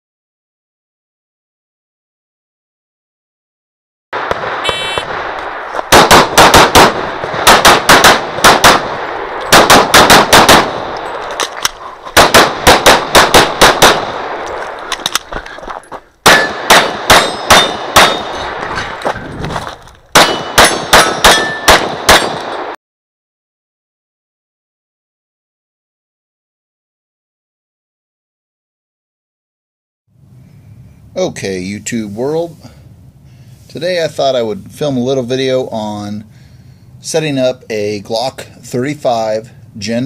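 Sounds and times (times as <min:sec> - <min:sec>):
pistol shots: 0:04.2 - 0:11.5, 0:12.2 - 0:14.7, 0:16.2 - 0:19.0, 0:20.1 - 0:22.8
short electronic beep: 0:04.7 - 0:05.0.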